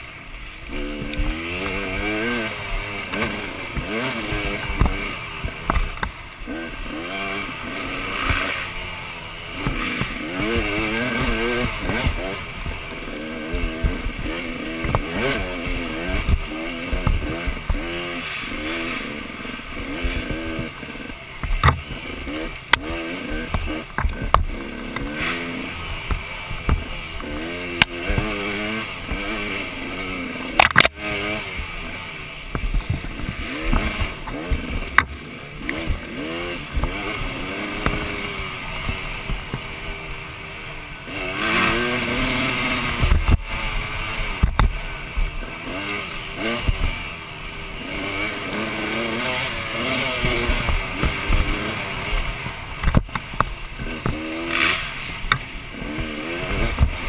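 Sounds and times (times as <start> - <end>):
dirt bike engine revving: 0.0 - 57.0
bike knocks and rattles: 0.7 - 7.0, 9.5 - 18.9, 19.8 - 25.4, 26.0 - 29.6, 32.5 - 39.8, 44.2 - 45.8, 48.1 - 57.0.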